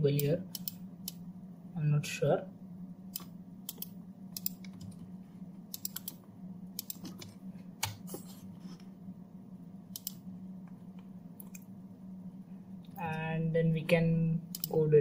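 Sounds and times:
low hum: 0.0 - 15.0
mouse clicks: 10.0 - 10.2, 14.5 - 14.8.

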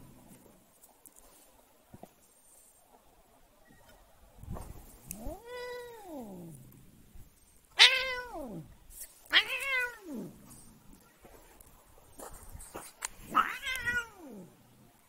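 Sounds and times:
cat meowing: 5.1 - 6.5, 7.8 - 8.6, 9.3 - 10.3, 13.3 - 14.5.

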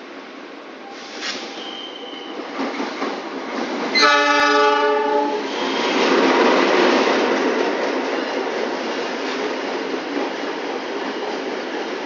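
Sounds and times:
locomotive air horn blast: 4.0 - 5.4.

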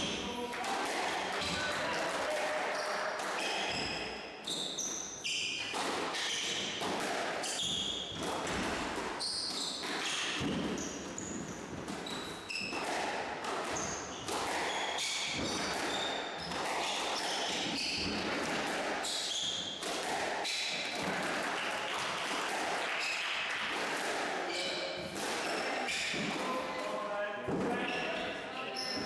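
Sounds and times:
squash ball hits: 5.6 - 26.9
shoes squeaking on wooden floor: 9.2 - 12.8, 27.4 - 29.0.

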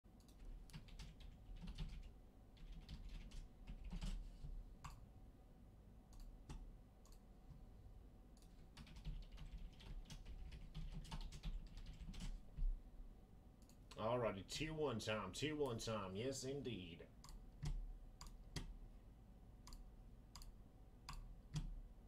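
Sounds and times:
keyboard typing clicks: 0.2 - 4.2, 6.1 - 7.2, 17.2 - 18.8, 19.6 - 21.8.

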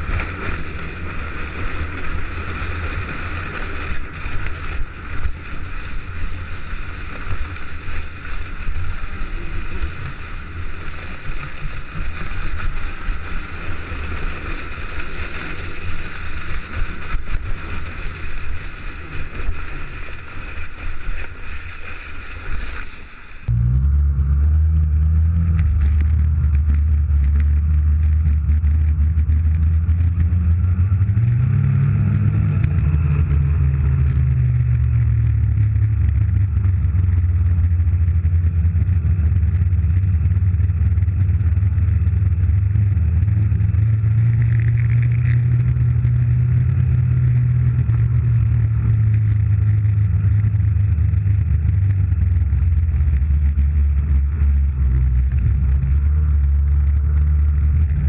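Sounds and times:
snowmobile engine running: 0.0 - 58.0.

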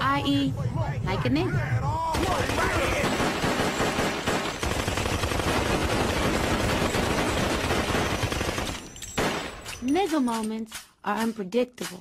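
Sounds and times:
rapid gunfire: 2.1 - 9.6.

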